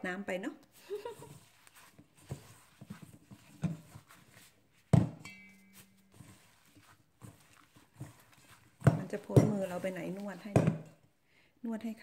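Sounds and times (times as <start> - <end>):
wet squelches of kneading meat: 0.7 - 4.9, 5.7 - 10.8.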